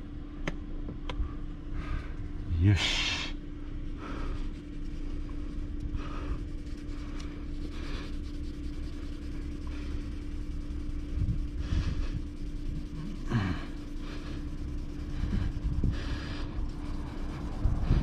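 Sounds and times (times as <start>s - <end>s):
low hum and rumble: 0.0s - 18.0s
sponge swishing on car paint: 4.4s - 18.0s.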